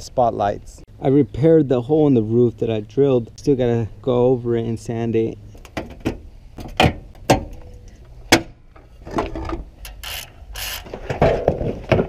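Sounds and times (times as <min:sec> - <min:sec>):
socket ratchet clicking: 0:09.9 - 0:10.9.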